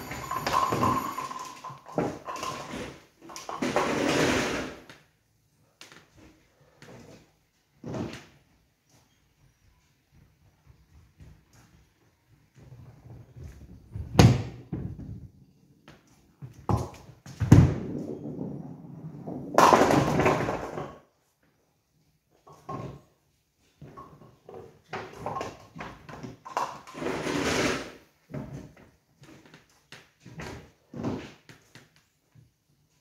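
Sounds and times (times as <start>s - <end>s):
clatter of pins: 0.0s - 4.8s
bowling ball thudding and rolling: 16.6s - 21.0s
ball striking pins: 19.2s - 21.0s.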